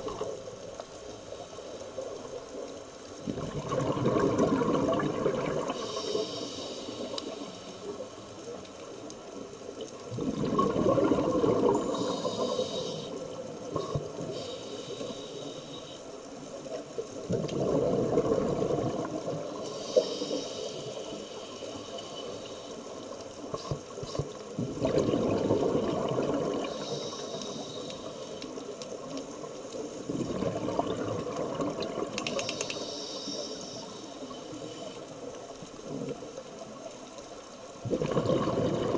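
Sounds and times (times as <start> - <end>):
exhaled bubbles rushing: 3.2 - 5.8, 10.0 - 12.1, 17.3 - 19.5, 24.6 - 26.8, 30.1 - 32.2, 37.8 - 38.9
regulator hissing on inhalation: 5.8 - 7.8, 11.9 - 13.2, 19.7 - 22.7, 26.7 - 28.4, 32.3 - 34.8.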